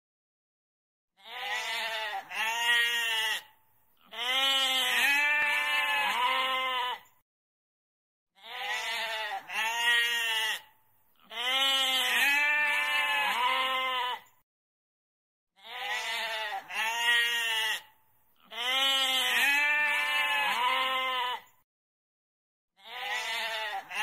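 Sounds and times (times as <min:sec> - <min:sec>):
goat bleating: 0:01.2 - 0:07.1, 0:08.4 - 0:14.3, 0:15.6 - 0:21.5, 0:22.8 - 0:24.0.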